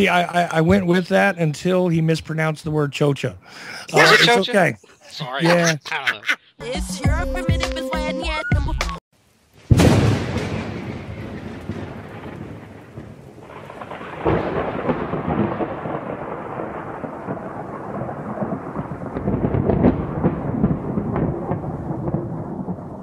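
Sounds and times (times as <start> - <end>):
rolling thunder: 9.7 - 23.0
thunder crack: 9.7 - 23.0.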